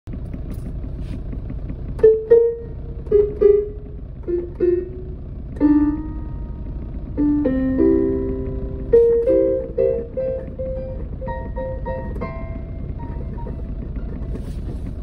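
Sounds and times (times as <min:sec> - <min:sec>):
steady low background hum: 0:00.1 - 0:15.0
digital keyboard notes: 0:02.0 - 0:14.4.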